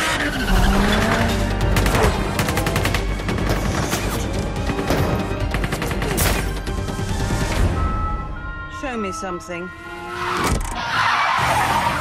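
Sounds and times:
car engine: 0.0 - 3.3
film score music: 0.0 - 12.0.

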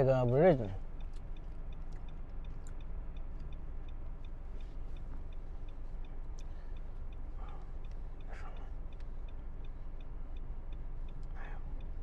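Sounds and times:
car engine idling hum: 0.0 - 12.0
turn signal ticking: 0.0 - 12.0.

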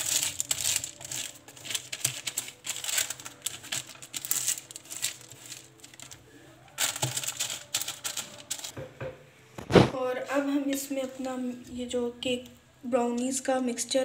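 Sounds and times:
paper crinkling and rustling: 0.0 - 8.8.

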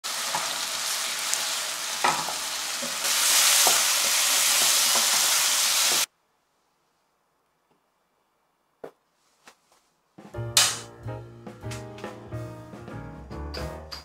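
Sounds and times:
chicken sizzling in a pan: 0.0 - 6.1.

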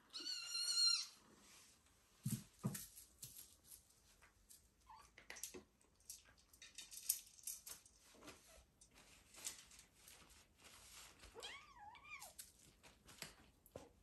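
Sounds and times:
kitten squeak: 0.1 - 1.1.

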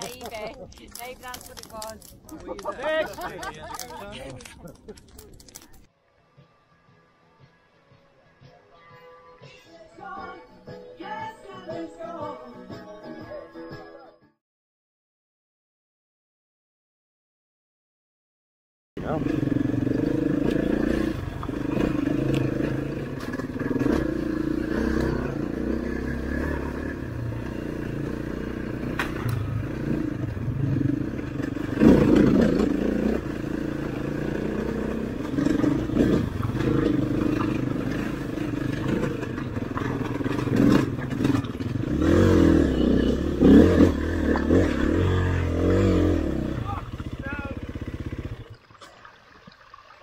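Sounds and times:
stones clattering under wheels: 0.0 - 5.9
off-road motorcycle engine revving: 19.0 - 48.6.

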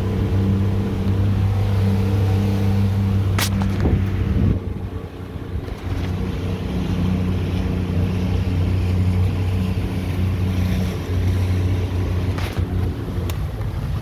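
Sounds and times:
outboard motor humming: 0.0 - 14.0
water rushing along hull: 0.0 - 14.0
wind on microphone: 0.0 - 14.0.

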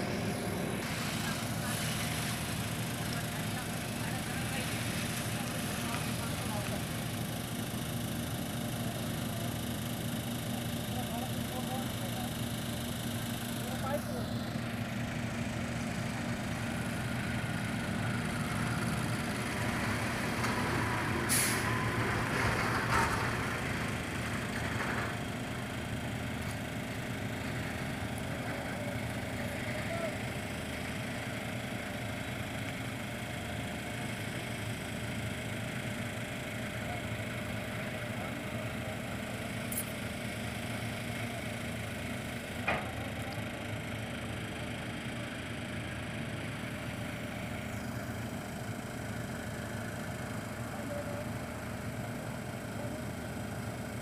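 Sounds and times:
crane engine running: 0.0 - 54.0.

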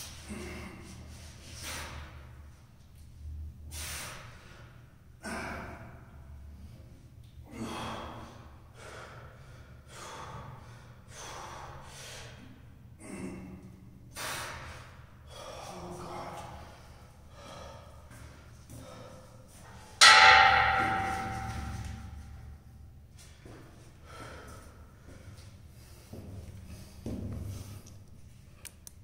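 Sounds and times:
man breathing hard: 0.2 - 2.4, 3.7 - 20.1, 23.9 - 28.0.

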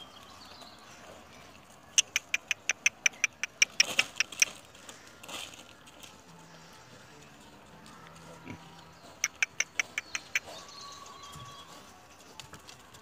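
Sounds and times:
soft rustle: 4.4 - 6.4.

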